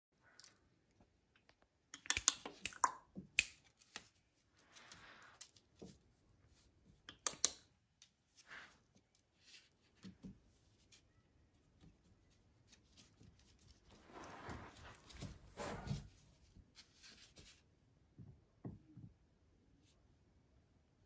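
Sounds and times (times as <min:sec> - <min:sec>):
paper rustling: 0:11.8 - 0:17.6.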